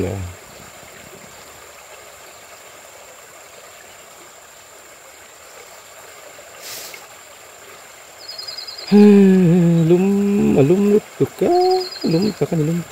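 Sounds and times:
stream water rushing: 0.0 - 12.9
short hiss: 6.6 - 7.1.

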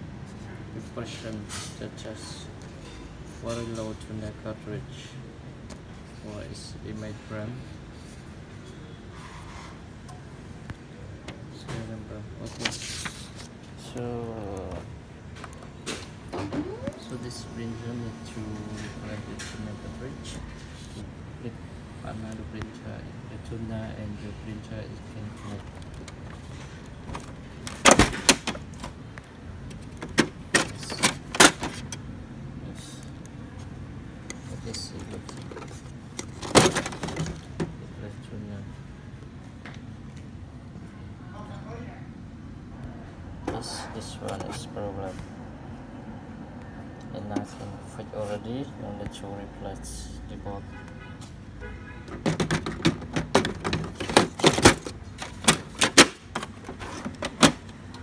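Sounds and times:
plastic clicks and knocks: 52.1 - 57.7.

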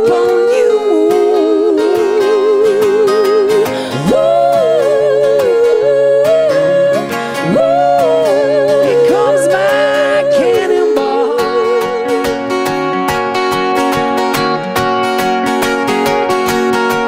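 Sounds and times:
two voices singing in harmony: 0.0 - 13.0
strummed guitar and ukulele: 0.0 - 17.0.

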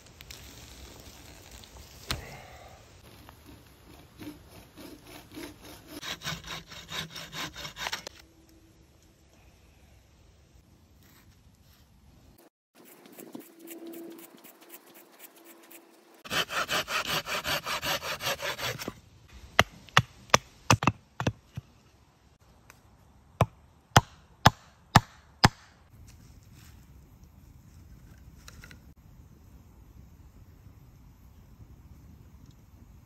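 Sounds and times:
hand auger grinding into wood: 3.0 - 8.2, 16.2 - 18.9
scraping strokes on wood: 3.0 - 8.2, 12.8 - 19.0.

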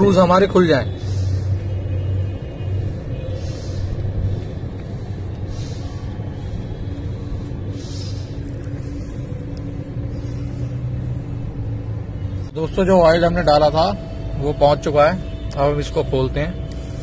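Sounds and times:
road traffic rumble: 0.0 - 17.0
soft hissing puffs: 0.8 - 12.6.

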